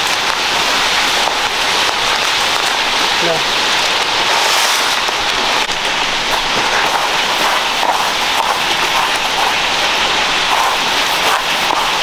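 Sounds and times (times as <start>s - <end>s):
small crackles and pops: 0.0s - 3.0s
oil sizzling in a pan: 0.0s - 12.0s.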